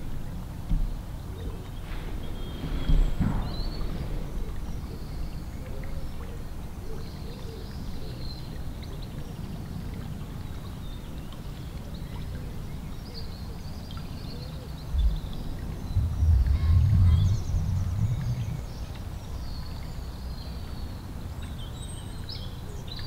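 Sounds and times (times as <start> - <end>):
wind rumbling on microphone: 14.8 - 20.2.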